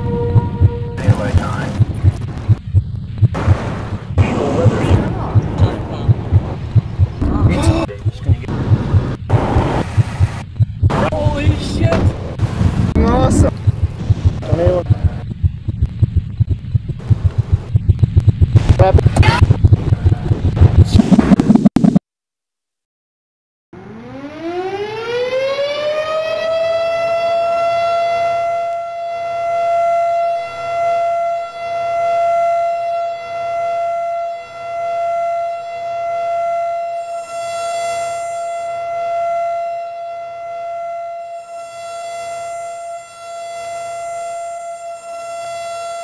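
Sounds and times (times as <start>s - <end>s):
warning siren wailing: 0.0s - 3.5s, 23.8s - 46.0s.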